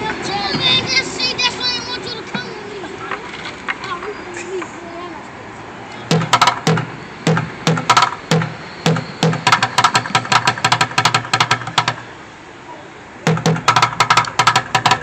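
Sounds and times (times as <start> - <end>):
drumsticks beating on buckets: 6.1 - 12.1, 13.3 - 15.0.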